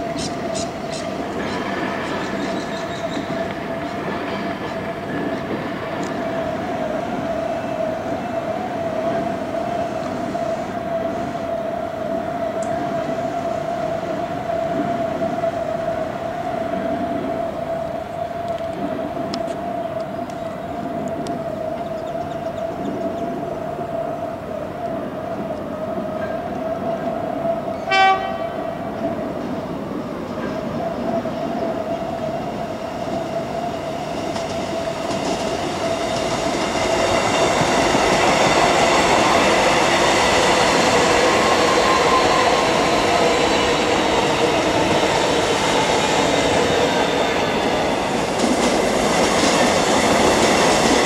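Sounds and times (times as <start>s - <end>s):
train horn toot: 27.7s - 29.0s
electric train running: 31.0s - 51.0s.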